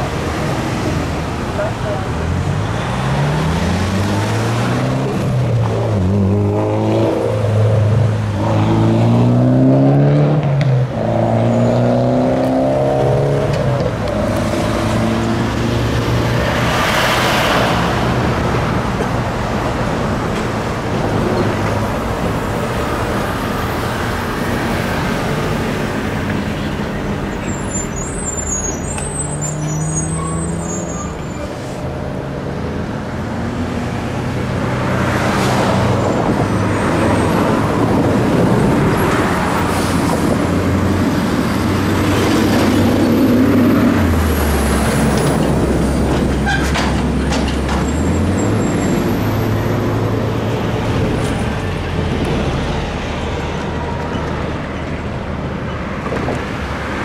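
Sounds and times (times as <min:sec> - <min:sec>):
heavy trucks passing: 0:00.0 - 0:57.0.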